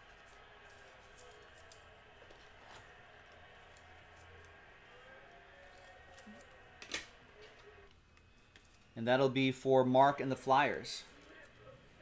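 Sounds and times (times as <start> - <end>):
trading cards clicking and rustling: 0.0 - 9.0.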